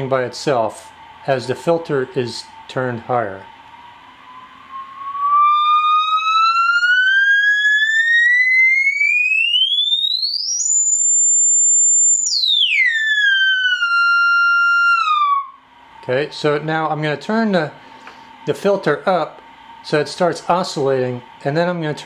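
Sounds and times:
guitar amp whistling tone: 0:03.0 - 0:15.6.

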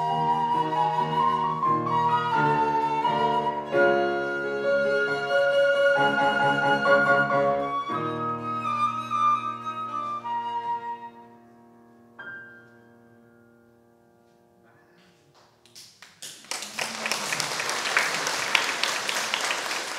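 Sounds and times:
flute violin and piano trio: 0:00.0 - 0:12.9
audience applauding: 0:15.6 - 0:19.9.

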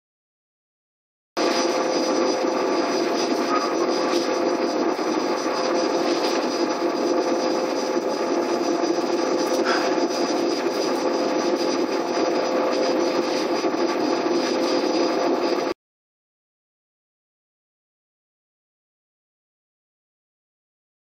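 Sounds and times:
constant hum: 0:01.4 - 0:15.8
cooling fans and hard disks whirring: 0:01.4 - 0:15.8
high whine: 0:01.4 - 0:15.8.

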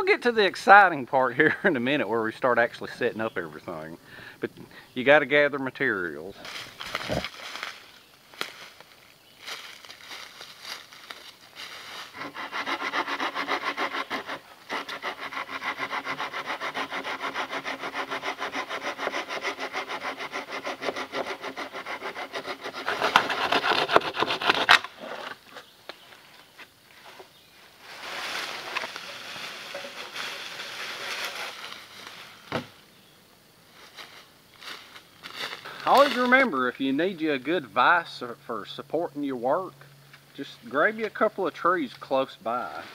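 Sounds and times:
soft rustling: 0:06.4 - 0:12.2, 0:25.0 - 0:32.8, 0:33.7 - 0:36.4
hand saw cutting log: 0:12.1 - 0:25.4, 0:28.4 - 0:31.8.

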